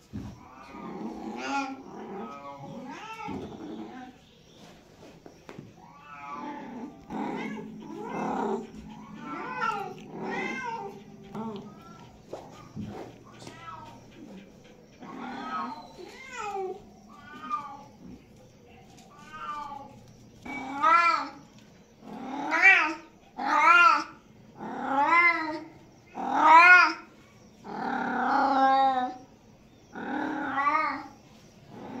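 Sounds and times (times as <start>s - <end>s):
cat meowing: 0.4s - 4.0s, 5.8s - 14.3s, 15.0s - 18.0s, 19.1s - 21.4s.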